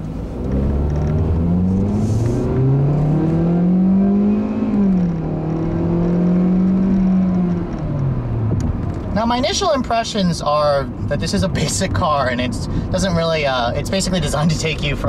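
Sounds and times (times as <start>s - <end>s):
car engine accelerating: 0.0s - 9.5s.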